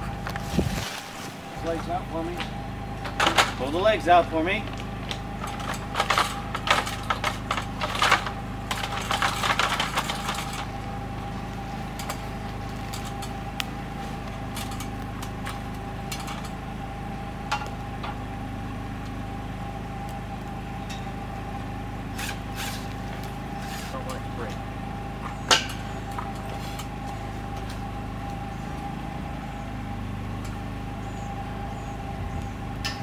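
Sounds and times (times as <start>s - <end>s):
steady low hum: 0.0s - 33.0s
aluminium ladder clicking and rattling: 5.4s - 10.6s.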